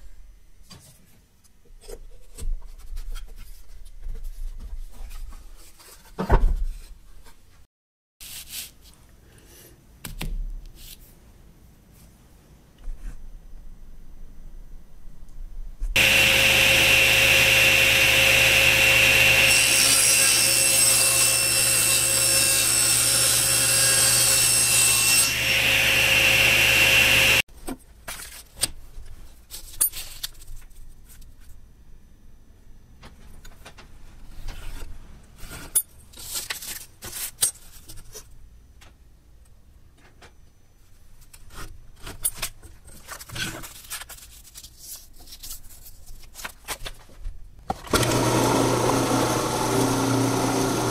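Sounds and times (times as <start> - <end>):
table saw cutting plywood: 16.0 - 27.4, 47.9 - 50.9
paper rustling: 42.9 - 47.3.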